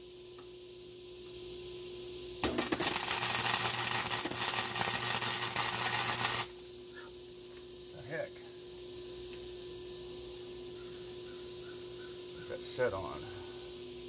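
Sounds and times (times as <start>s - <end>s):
welder arc crackling: 2.4s - 6.7s.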